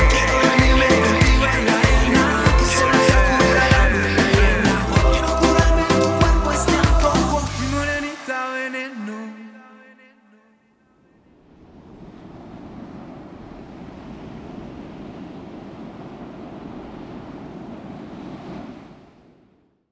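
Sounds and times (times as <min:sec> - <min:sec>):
waves breaking on a beach: 0:07.4 - 0:09.8, 0:11.3 - 0:19.6.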